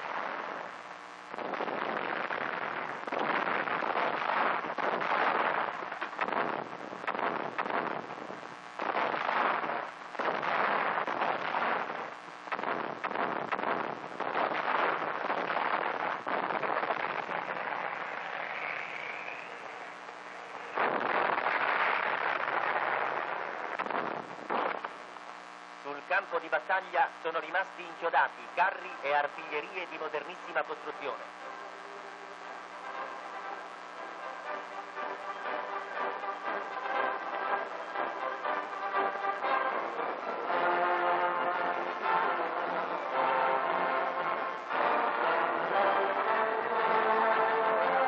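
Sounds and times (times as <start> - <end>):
film soundtrack crackling: 0.0 - 48.0
explosions: 1.4 - 25.0.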